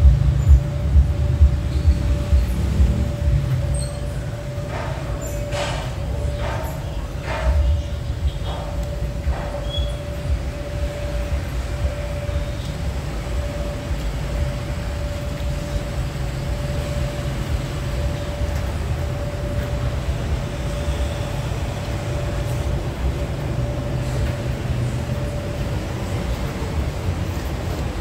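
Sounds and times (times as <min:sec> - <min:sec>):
constant humming tone: 0:00.0 - 0:28.0
street traffic rumble: 0:00.0 - 0:28.0.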